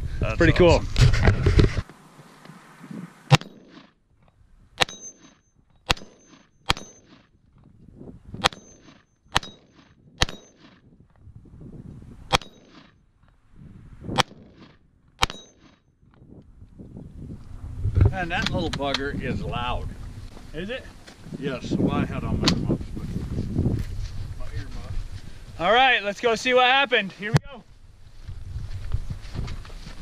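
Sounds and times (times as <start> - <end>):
rifle shots: 3.3 - 3.8, 5.9 - 7.2, 8.4 - 10.8.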